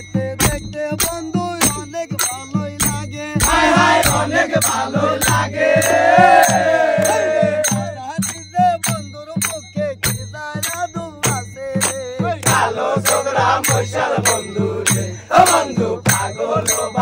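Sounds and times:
folk song with drum beat: 0.0 - 17.0
voices singing long phrase: 3.4 - 8.0, 12.2 - 17.0.

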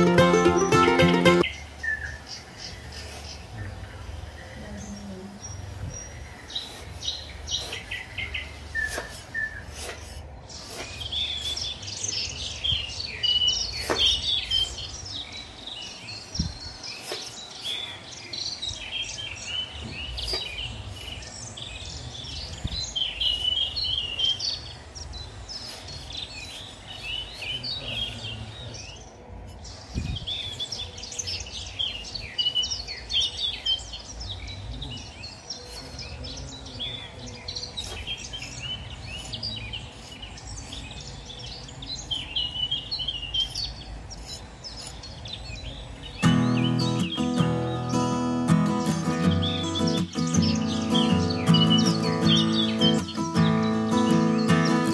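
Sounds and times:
small birds chirping: 0.0 - 54.9.

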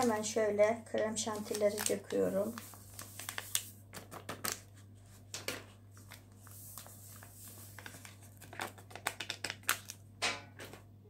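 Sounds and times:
paper sachets crinkling: 1.2 - 4.8, 6.0 - 10.0.

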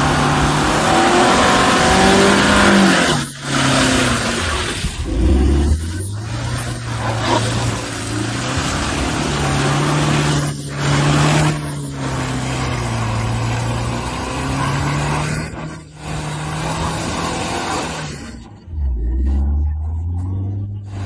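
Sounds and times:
engine running under load: 0.0 - 21.0
tyres churning through mud: 0.0 - 21.0.

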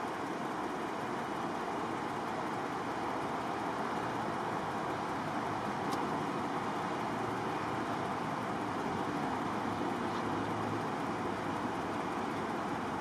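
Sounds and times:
highway traffic rushing: 0.0 - 13.0.

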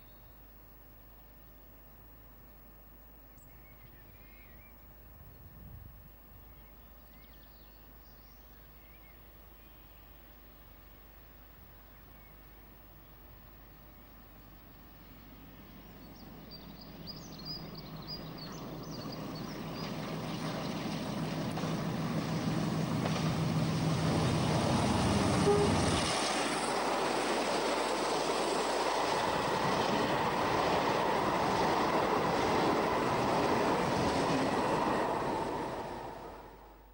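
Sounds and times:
diesel locomotive engine: 14.4 - 36.9
train wheel and rail noise: 15.2 - 36.9.

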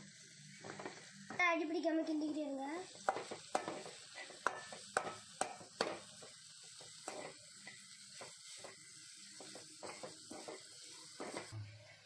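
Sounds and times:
faint sizzle: 0.0 - 12.0
metal spoon scraping metal pan: 7.0 - 7.8.

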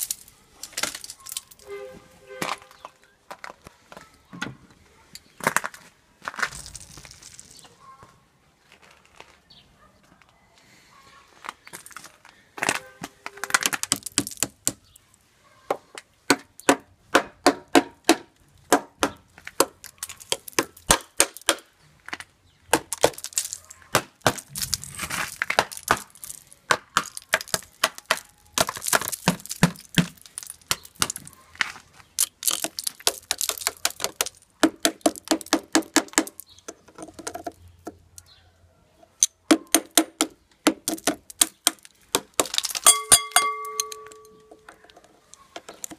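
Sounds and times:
ice cracking and breaking: 24.2 - 34.4, 40.9 - 42.8
glassy ice clinks: 42.6 - 44.7.

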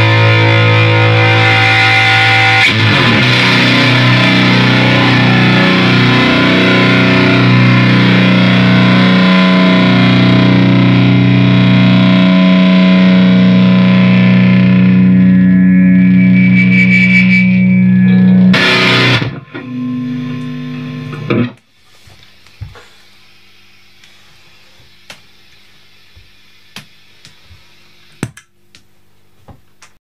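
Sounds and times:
guitar feedback: 0.0 - 21.6
fuzzed electric guitar: 0.0 - 28.2.

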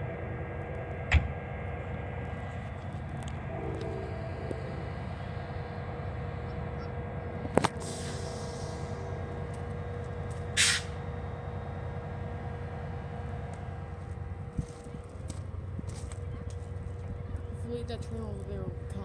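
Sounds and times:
diesel locomotive rumbling: 0.0 - 19.0
short loud hiss: 10.6 - 10.9.

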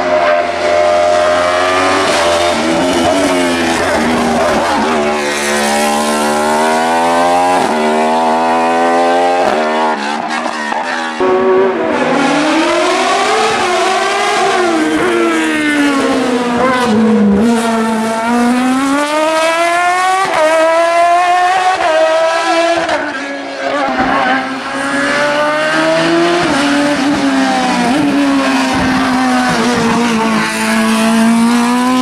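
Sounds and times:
race car engine accelerating: 0.0 - 32.0
car engine slowing through bend: 24.0 - 32.0.

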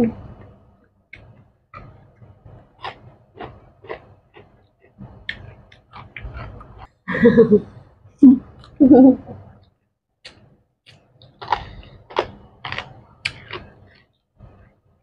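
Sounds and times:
chewing and lip-smacking: 2.7 - 7.0, 10.2 - 14.2.

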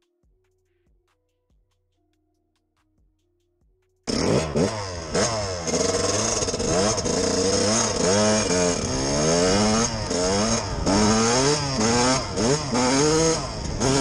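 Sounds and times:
dirt bike engine revving: 4.1 - 14.0.

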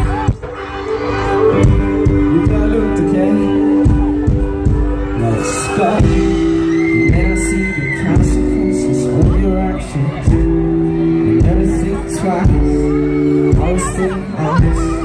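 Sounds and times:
loud live rock band: 0.0 - 15.0
person singing: 1.1 - 15.0
thudding bass drum: 3.8 - 5.2, 10.3 - 12.9.

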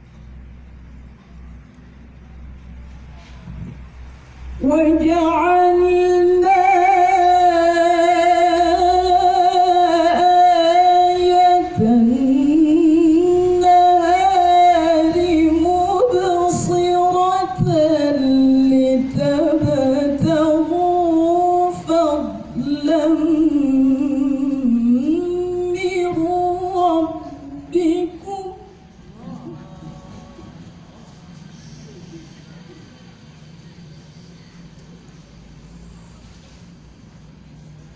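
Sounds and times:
woman reciting melodically: 4.4 - 32.8.

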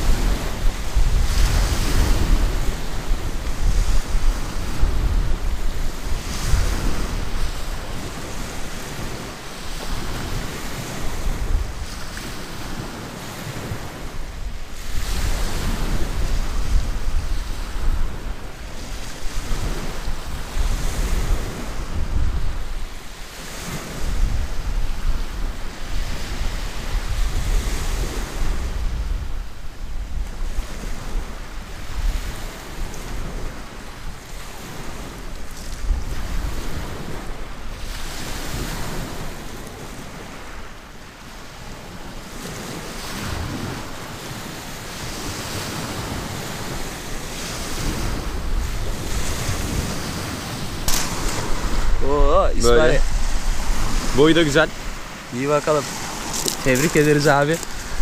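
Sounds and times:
sea waves breaking on pebbles: 0.0 - 28.8, 30.5 - 58.0
wind buffeting microphone: 0.0 - 58.0.

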